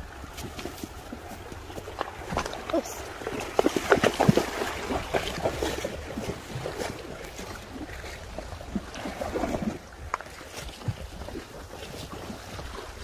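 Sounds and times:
water splashing around horse legs: 0.0 - 13.0.

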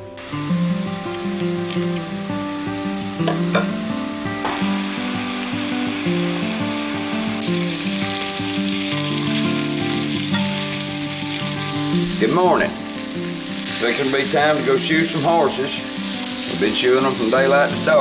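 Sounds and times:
background music: 0.0 - 18.0
sausage patties sizzling: 0.0 - 18.0.

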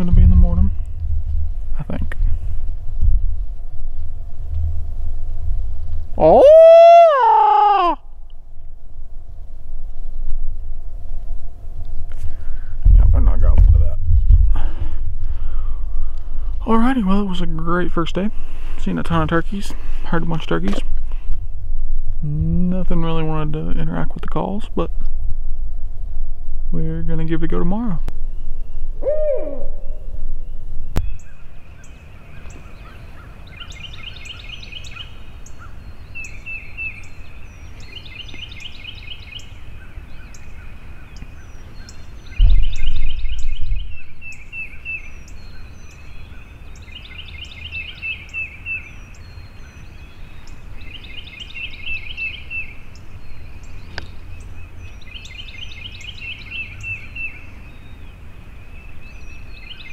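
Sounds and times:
low thump: 0.0 - 6.1, 12.9 - 14.8, 42.4 - 43.9
loud low rumble: 0.0 - 7.2, 8.0 - 31.3, 42.4 - 44.3
owl hooting: 6.2 - 8.2, 28.8 - 30.5
trilled animal calls: 29.0 - 30.2.

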